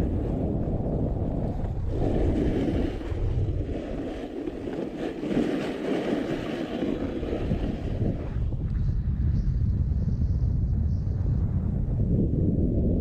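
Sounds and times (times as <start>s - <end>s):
skis scraping over snow: 0.0s - 8.5s
wind on microphone: 0.0s - 13.0s.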